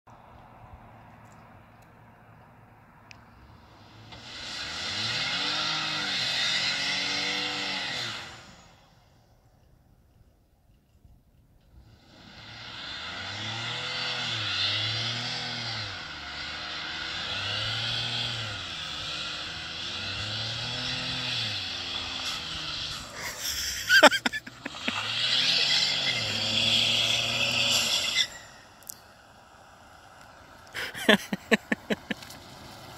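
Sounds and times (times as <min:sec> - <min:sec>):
truck engine revving hard: 0:03.8 - 0:08.8, 0:11.8 - 0:29.0, 0:30.8 - 0:32.4
tyres spinning on wet road: 0:21.6 - 0:28.4, 0:30.4 - 0:32.9.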